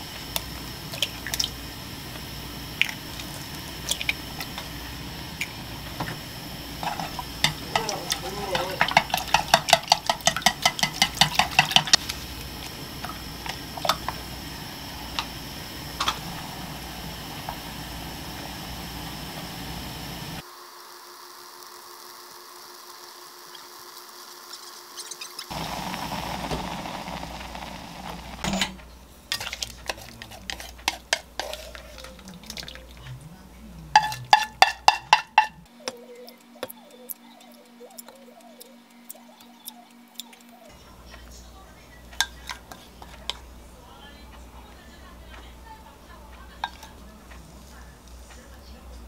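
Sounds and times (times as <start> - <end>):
simmering pot hissing: 0.0 - 40.8
spatula knocking on a pot: 8.6 - 12.0, 34.0 - 35.6
broth bubbling: 25.2 - 28.5, 31.4 - 34.0
spatula scraping a pot: 29.3 - 32.8.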